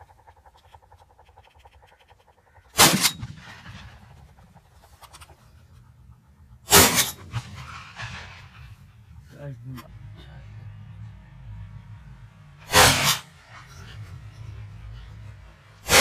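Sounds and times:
gunshots with echo: 0:02.7 - 0:04.4, 0:06.6 - 0:08.8, 0:12.7 - 0:13.3.

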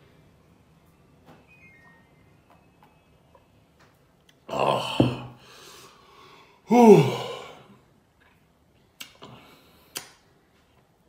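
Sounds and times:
man sighing: 0:04.5 - 0:05.8, 0:06.6 - 0:07.8
man gasping: 0:04.6 - 0:07.7.

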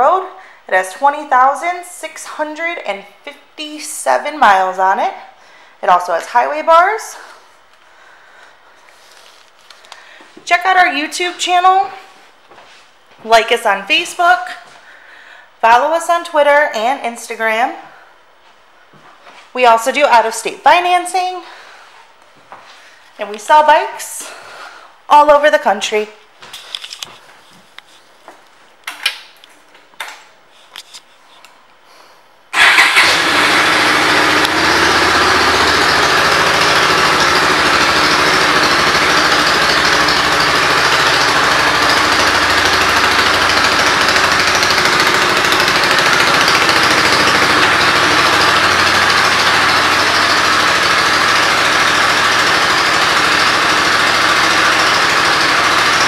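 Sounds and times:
motorcycle engine idling: 0:32.6 - 0:56.0.

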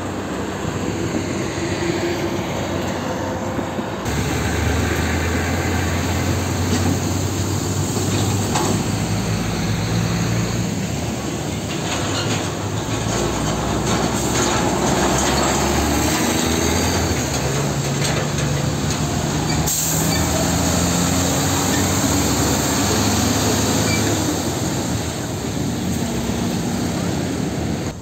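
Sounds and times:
truck diesel engine passing: 0:00.0 - 0:28.0
clunk: 0:08.0 - 0:09.0.

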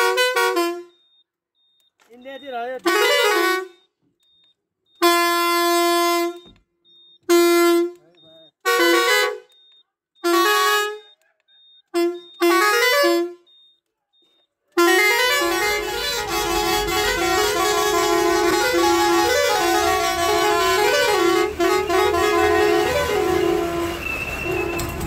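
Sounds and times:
air horn playing multi-note tune: 0:00.0 - 0:01.0, 0:02.8 - 0:03.8, 0:05.0 - 0:06.4, 0:07.3 - 0:08.0, 0:08.6 - 0:09.5, 0:10.2 - 0:11.1, 0:12.0 - 0:13.4, 0:14.8 - 0:25.0
truck air horn blasts: 0:00.0 - 0:01.0, 0:02.8 - 0:03.8, 0:05.0 - 0:06.4, 0:07.3 - 0:08.0, 0:08.6 - 0:09.5, 0:10.2 - 0:11.1, 0:12.0 - 0:13.5, 0:14.8 - 0:25.0.

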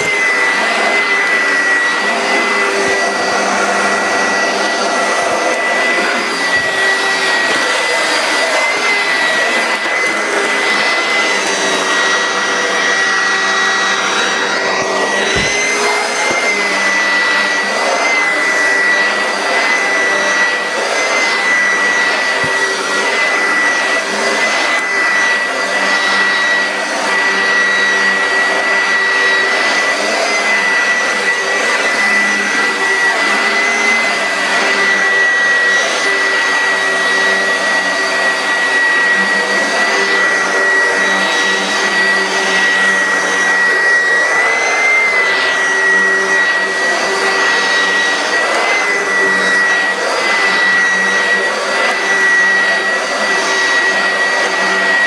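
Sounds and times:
vacuum cleaner whining: 0:00.0 - 0:55.0.

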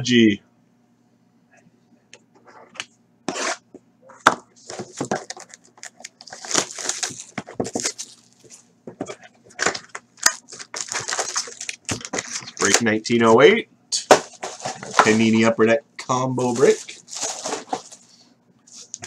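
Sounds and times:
plastic shrink wrap crackling and tearing: 0:05.0 - 0:08.6, 0:09.6 - 0:12.8, 0:16.4 - 0:18.0.

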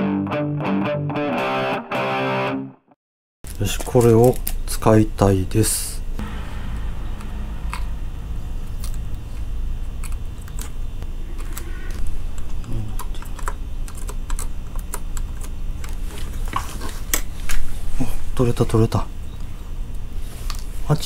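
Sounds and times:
steady low hum: 0:04.4 - 0:21.0.

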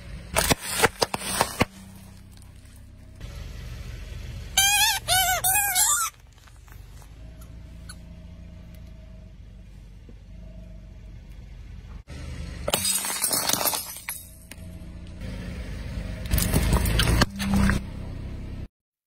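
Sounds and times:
low steady hum: 0:00.0 - 0:18.7
car tyre crushing plastic toys: 0:00.2 - 0:03.2, 0:04.6 - 0:07.1, 0:16.2 - 0:17.8.

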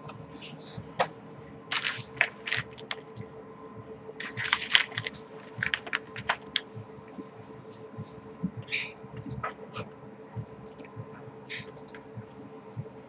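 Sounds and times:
faint electrical hum: 0:00.0 - 0:13.0
computer keyboard typing: 0:01.7 - 0:03.2, 0:04.2 - 0:07.2.

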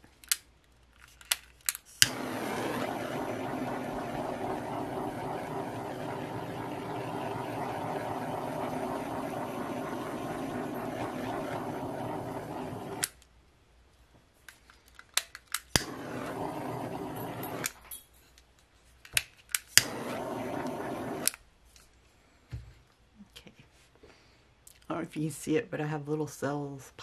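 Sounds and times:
torch flame roaring: 0:02.0 - 0:13.2, 0:15.8 - 0:17.8, 0:19.8 - 0:21.4.

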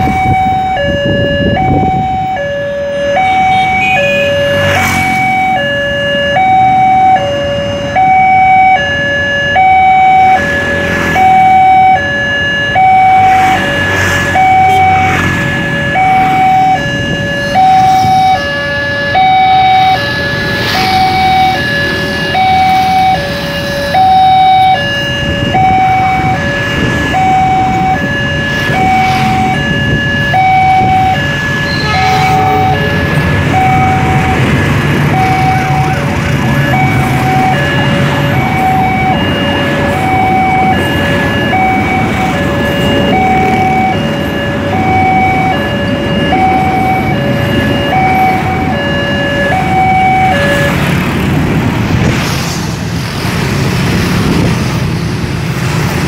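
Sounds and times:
two-tone crossing alarm: 0:00.0 - 0:52.1
motorbike and car traffic: 0:00.0 - 0:56.0
train rumbling past: 0:31.0 - 0:56.0.

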